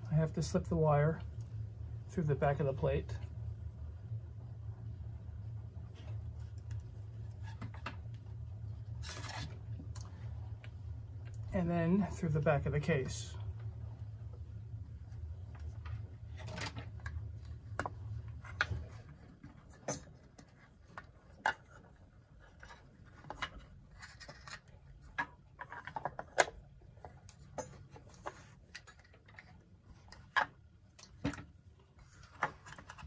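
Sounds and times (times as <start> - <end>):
low hum: 0.0 - 19.7.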